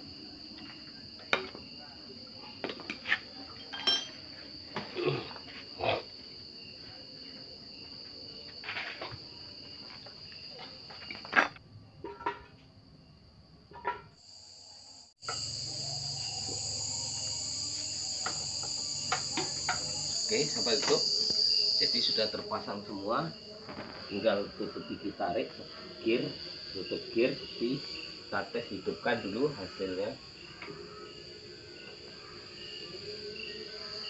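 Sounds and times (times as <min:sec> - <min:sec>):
crickets chirping: 0:00.0 - 0:34.0
metal engine parts clinking: 0:03.6 - 0:04.2.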